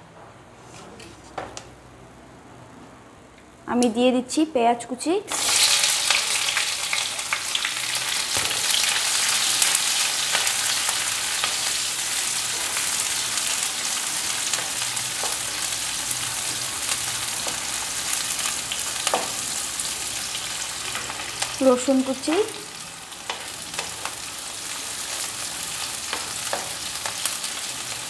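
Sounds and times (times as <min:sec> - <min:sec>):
onions sizzling in oil: 0:05.3 - 0:28.0.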